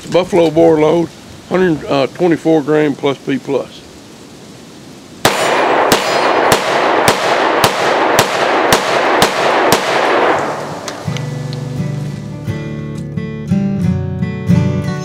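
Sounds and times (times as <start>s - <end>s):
pistol shots echoing: 5.2s - 11.2s.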